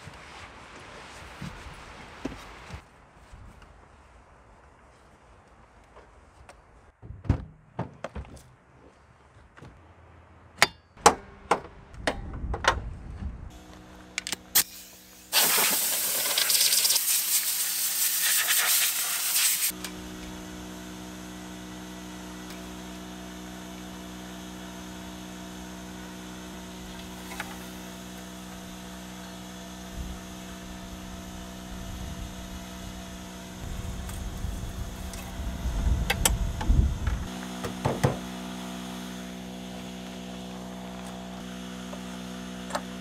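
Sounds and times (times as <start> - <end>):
compressed air hissing from blow gun: 14.5 - 19.8.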